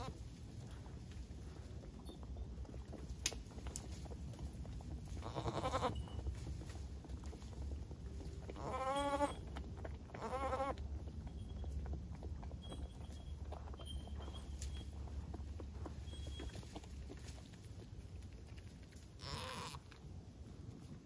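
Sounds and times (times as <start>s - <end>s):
goats bleating: 5.2s - 6.0s, 8.6s - 9.4s, 10.2s - 10.8s, 19.2s - 19.8s.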